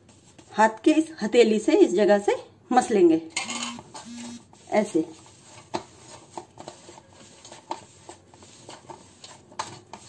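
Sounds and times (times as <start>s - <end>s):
dough kneaded on metal: 0.0s - 1.2s, 3.9s - 10.0s.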